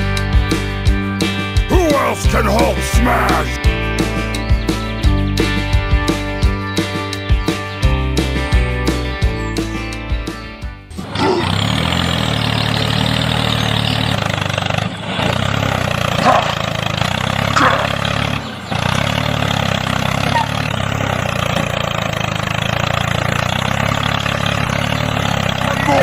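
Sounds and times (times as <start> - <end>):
tractor diesel engine idling: 1.7 - 3.6, 10.9 - 26.0.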